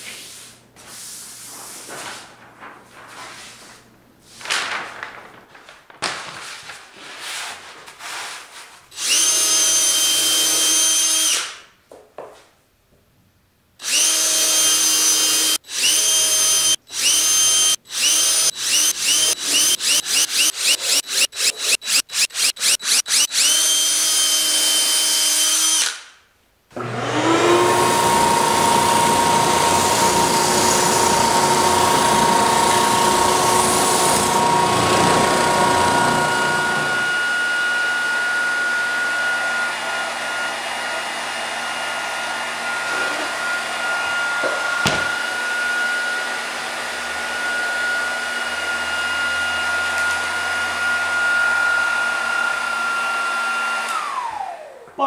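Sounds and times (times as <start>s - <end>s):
power tool running: 9.0s - 11.5s, 13.8s - 26.0s, 26.8s - 54.8s
heat gun blowing: 13.8s - 26.1s, 26.8s - 54.4s
belt sander sanding plastic: 15.0s - 24.3s, 27.3s - 37.2s.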